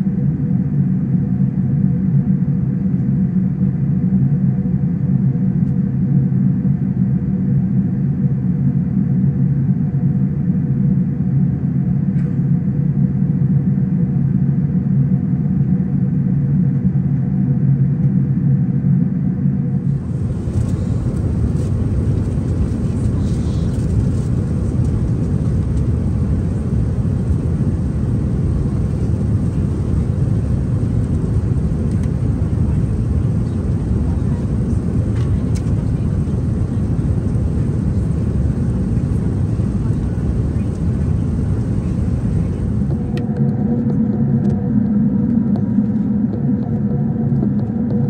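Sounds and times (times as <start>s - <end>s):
faint steady hum: 19.6s - 46.8s
aircraft cabin noise: 19.8s - 44.9s.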